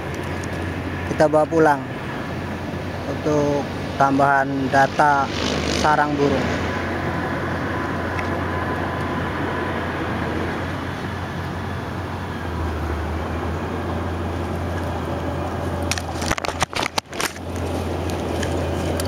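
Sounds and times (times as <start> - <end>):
steady low rumble: 0.0 - 19.0
leaves and twigs rustling: 14.0 - 19.0.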